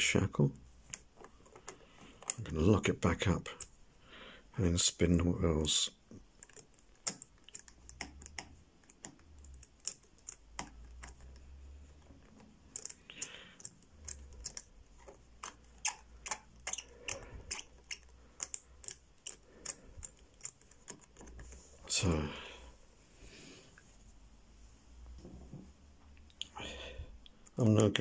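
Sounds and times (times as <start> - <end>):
padlock wheels clicking: 6.4 - 11.4, 12.2 - 21.4.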